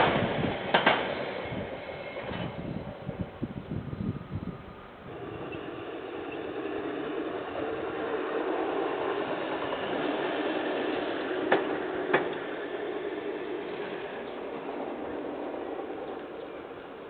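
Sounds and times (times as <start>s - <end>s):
sharp clacks: 11.4s - 12.7s.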